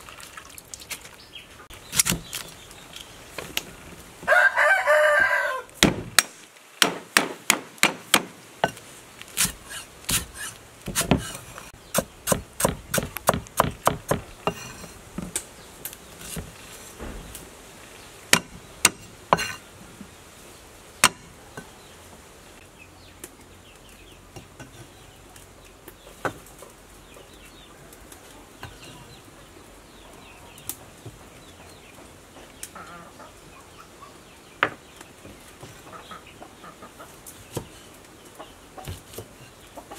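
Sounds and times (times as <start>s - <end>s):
cleaver chopping on wooden block: 5.8s - 8.8s, 9.4s - 15.4s, 18.3s - 19.6s, 21.0s - 21.3s.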